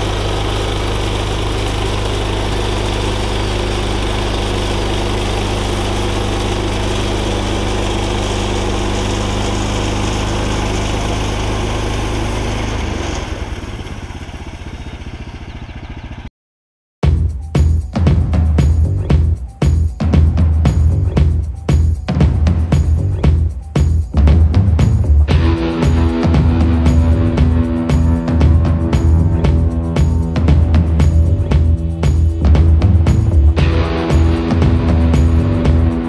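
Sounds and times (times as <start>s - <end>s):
band saw cutting wood: 0.0s - 13.8s
sawmill engine running: 0.0s - 16.3s, 24.8s - 36.0s
drum-heavy music: 17.0s - 36.0s.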